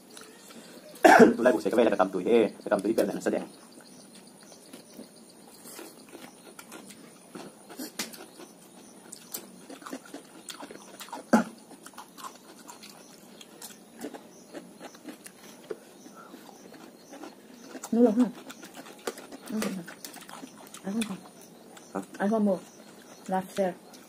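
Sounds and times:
chewing and mouth smacks: 0:03.8 - 0:24.0.

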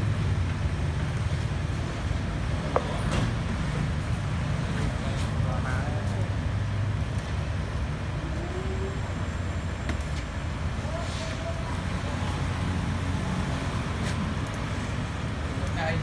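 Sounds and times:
faint voices: 0:10.8 - 0:12.8.

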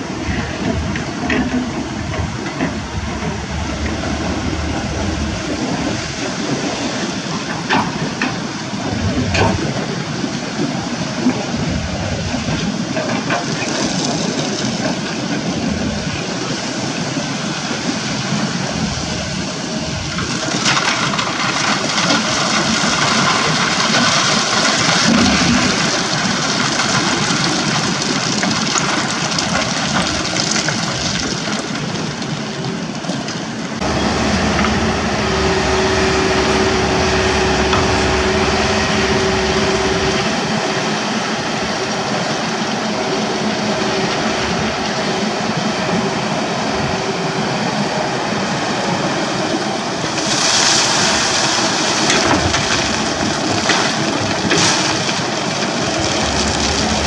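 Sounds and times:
steady engine hum: 0:00.0 - 0:13.0, 0:33.6 - 0:57.0
excavator engine and hydraulics: 0:00.0 - 0:57.0.

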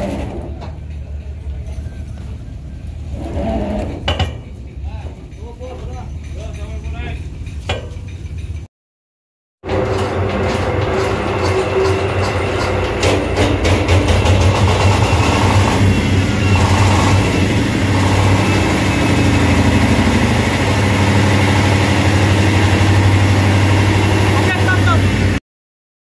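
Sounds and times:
diesel engine driving a pump: 0:09.7 - 0:25.4.

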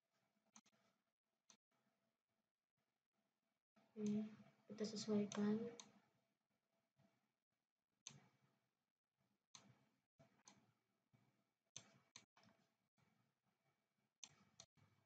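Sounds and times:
faint computer mouse clicks: 0:04.9 - 0:05.9.

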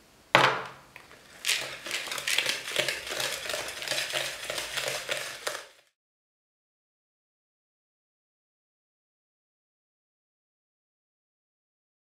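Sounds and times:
whisk scraping in plastic bowl: 0:01.0 - 0:05.9.

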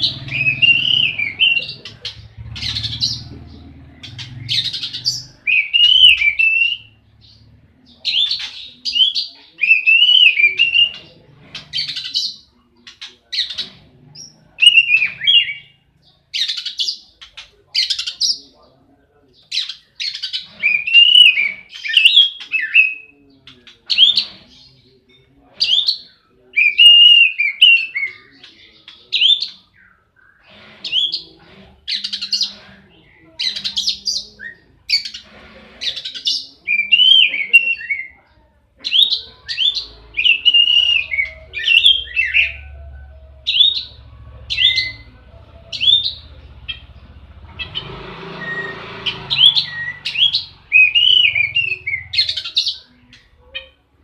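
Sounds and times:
bird singing whistled phrases: 0:04.9 - 0:07.0, 0:08.9 - 0:11.0, 0:26.5 - 0:28.2, 0:38.9 - 0:42.6, 0:49.4 - 0:52.5.

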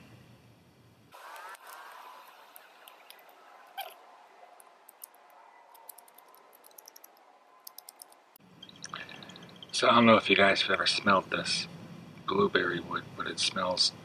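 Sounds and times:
bark stripping clicks and crackles: 0:01.3 - 0:08.2.

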